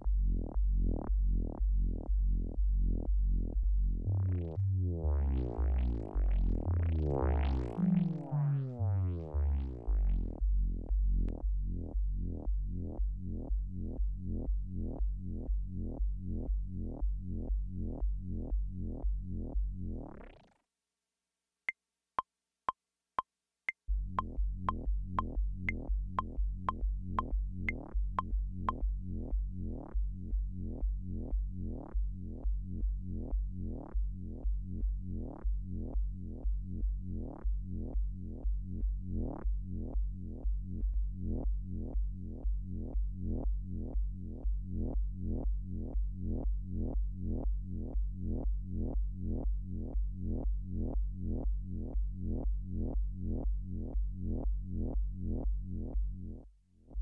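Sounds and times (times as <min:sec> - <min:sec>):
synthesizer bass pattern: 0:00.0 - 0:11.8, 0:23.9 - 0:28.8.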